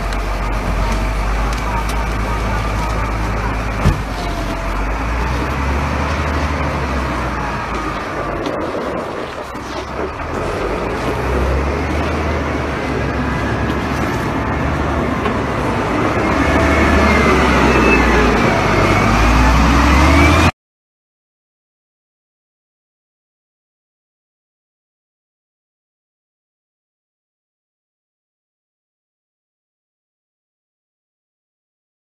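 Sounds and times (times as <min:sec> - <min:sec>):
wheel loader diesel engine rumble: 0:00.0 - 0:20.5.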